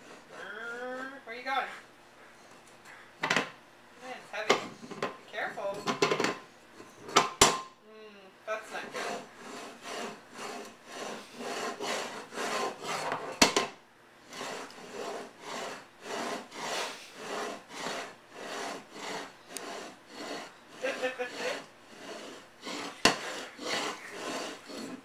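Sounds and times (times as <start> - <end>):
metal bowl scraping tile floor: 4.4 - 7.5, 8.6 - 25.0.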